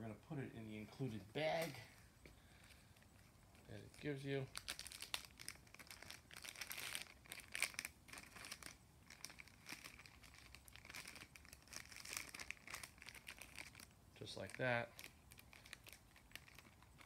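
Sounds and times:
plastic bag crinkling: 0:03.5 - 0:17.0.

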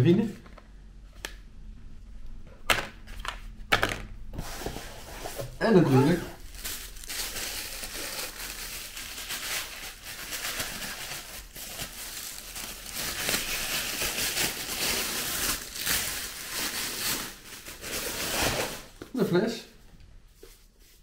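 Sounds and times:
plastic wrapping crinkling: 0:05.8 - 0:19.1.

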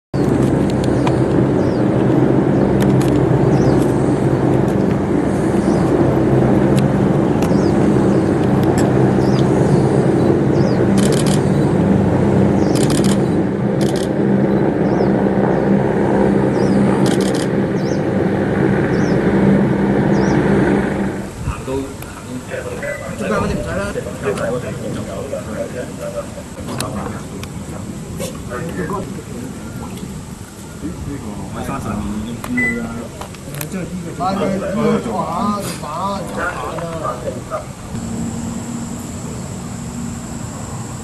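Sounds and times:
helicopter hovering: 0:00.2 - 0:41.0.

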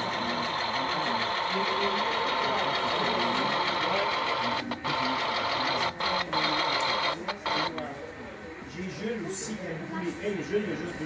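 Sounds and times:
model train motor whirring: 0:00.0 - 0:07.8.

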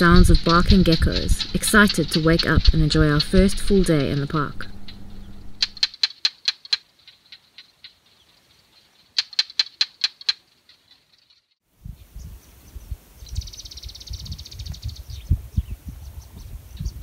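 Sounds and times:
low rumbling thumps: 0:00.0 - 0:05.8
geckos clicking chirps: 0:00.0 - 0:11.5.

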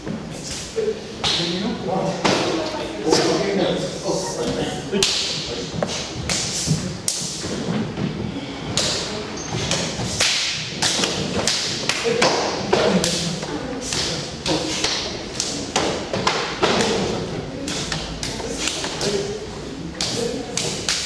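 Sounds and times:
hands slapping against arms: 0:09.7 - 0:12.4.

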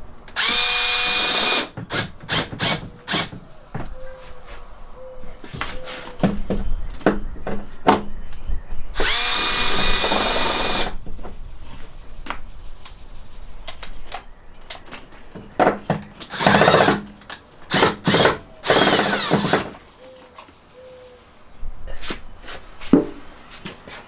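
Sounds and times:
power drill running: 0:00.4 - 0:03.3, 0:09.0 - 0:11.0, 0:16.3 - 0:17.0, 0:17.7 - 0:19.7.

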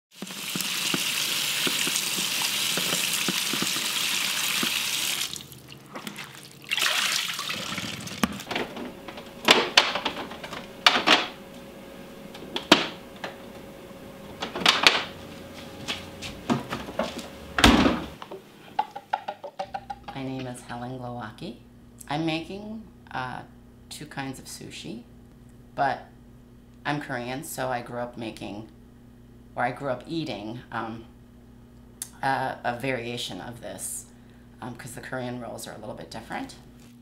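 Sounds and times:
kitchen tap running: 0:00.1 - 0:08.5
faint steady hum: 0:00.9 - 0:37.0
clicks and knocks of kitchen work: 0:16.5 - 0:20.2.

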